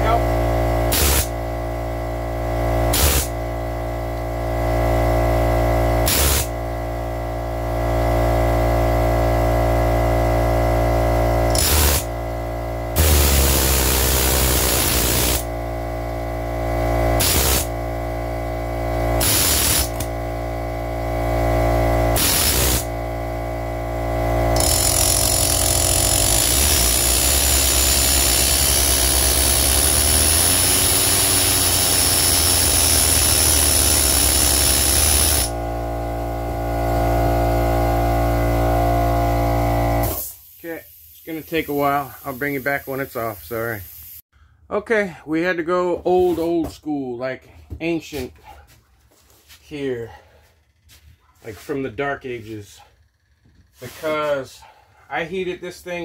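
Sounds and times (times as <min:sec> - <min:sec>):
air compressor running: 0:00.0 - 0:44.5, 0:50.1 - 0:56.0
pneumatic ratchet bursts: 0:00.9 - 0:01.5, 0:02.9 - 0:03.4, 0:06.0 - 0:06.7, 0:11.5 - 0:12.3, 0:12.9 - 0:15.6, 0:17.1 - 0:17.9, 0:19.1 - 0:20.2, 0:22.1 - 0:23.0, 0:24.5 - 0:35.6, 0:40.0 - 0:44.2
loud air hiss: 0:40.1 - 0:44.2.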